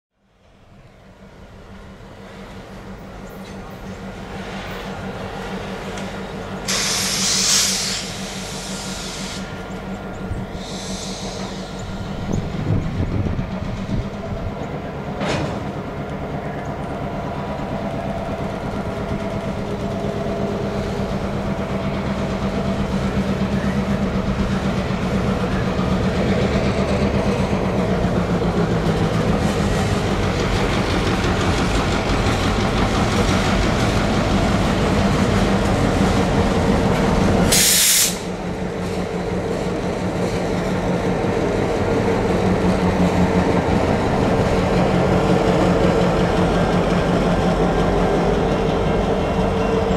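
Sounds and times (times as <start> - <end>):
diesel locomotive hum: 0.1 - 49.9
train wheel clatter: 2.5 - 49.9
short sharp hiss: 6.7 - 9.5, 37.5 - 38.3.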